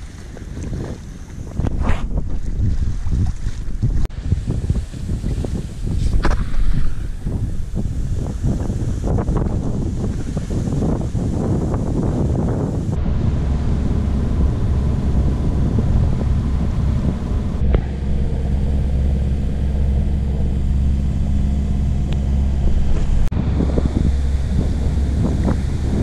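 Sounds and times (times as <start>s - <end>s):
boat engine droning: 6.3s - 26.0s.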